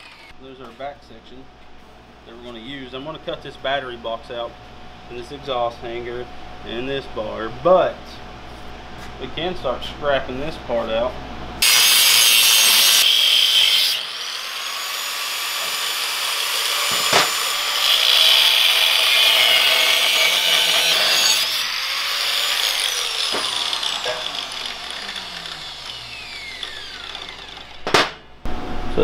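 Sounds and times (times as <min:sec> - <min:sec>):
angle grinder cutting steel: 0:00.0 - 0:00.3, 0:11.6 - 0:28.0.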